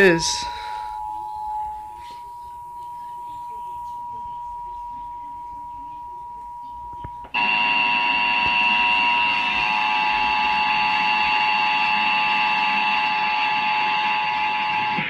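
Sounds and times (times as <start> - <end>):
tv programme sound: 0.0 - 10.2
two-tone alarm from tv speaker: 0.0 - 15.0.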